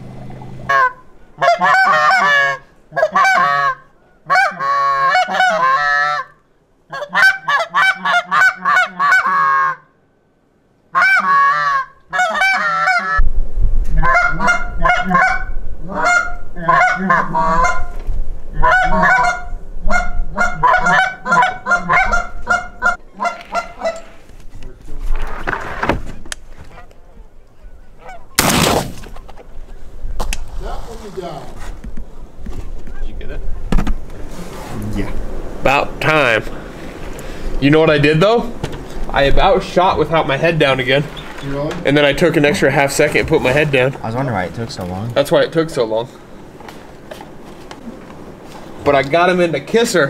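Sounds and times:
geese honking and clucking: 0.0s - 9.9s, 10.9s - 13.3s, 13.9s - 24.4s, 26.6s - 28.4s.

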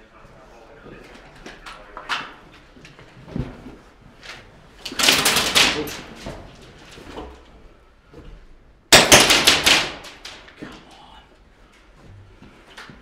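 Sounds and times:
rapid airsoft gunfire: 5.0s - 5.9s, 8.9s - 10.2s.

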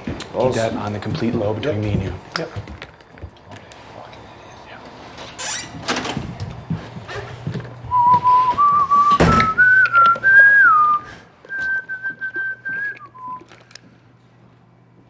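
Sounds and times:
person whistling a tune: 7.9s - 13.5s.

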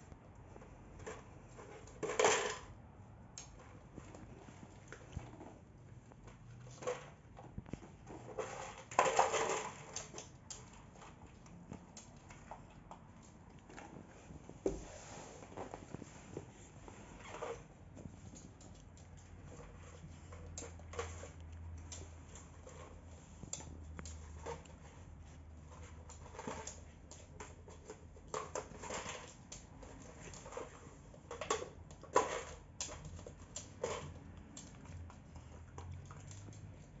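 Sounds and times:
dog pushing bottle toy rattling: 6.7s - 11.5s.

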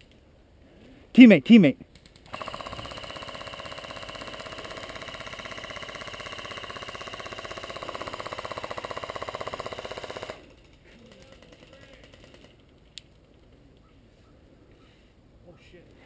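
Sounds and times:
airsoft rifle full-auto burst: 2.2s - 12.6s.

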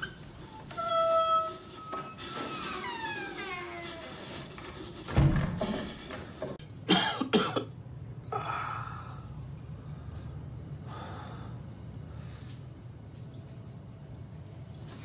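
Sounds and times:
man coughing: 6.9s - 7.7s
man breathing heavily and groaning: 8.3s - 9.3s.

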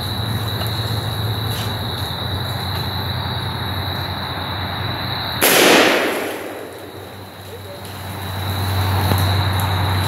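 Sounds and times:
shotgun blast: 5.4s - 7.2s.

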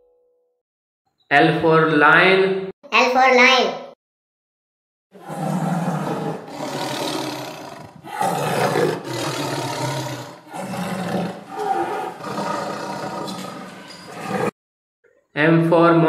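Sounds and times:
lion roaring: 5.2s - 14.5s.

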